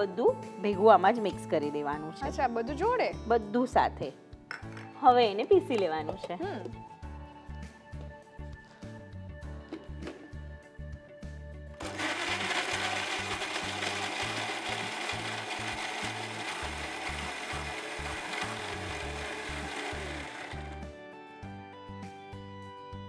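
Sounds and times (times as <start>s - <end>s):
mixer grinder running: 11.8s - 20.9s.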